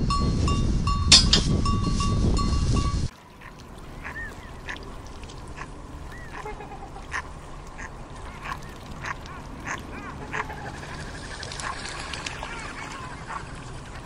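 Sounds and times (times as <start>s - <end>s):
steady background noise: 3.1s - 14.0s
swans and ducks calling: 3.1s - 14.0s.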